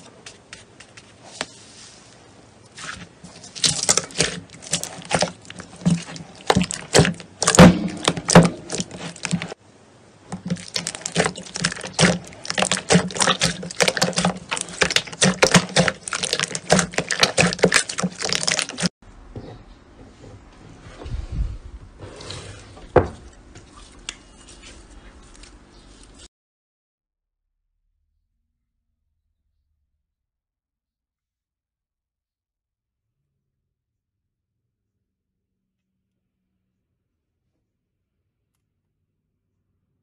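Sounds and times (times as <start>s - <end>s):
slime crackling and popping: 3.3s - 9.6s, 10.3s - 18.9s.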